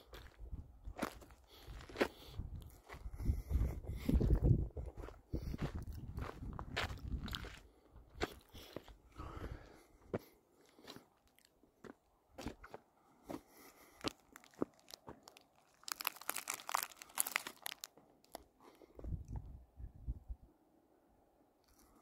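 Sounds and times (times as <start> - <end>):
footsteps crunching on gravel: 1.0 - 7.6, 11.8 - 17.9.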